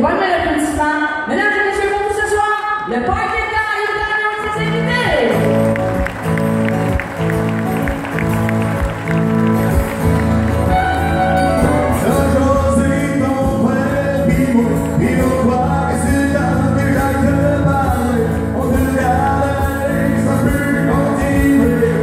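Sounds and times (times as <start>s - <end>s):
strummed acoustic guitars: 5.2s - 22.0s
man singing: 11.6s - 22.0s.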